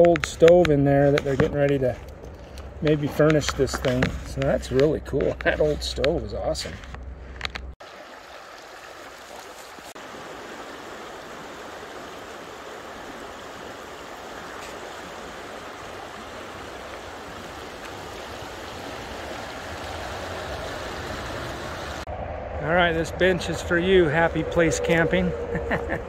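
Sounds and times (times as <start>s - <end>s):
steady rushing noise: 19.6s - 26.0s.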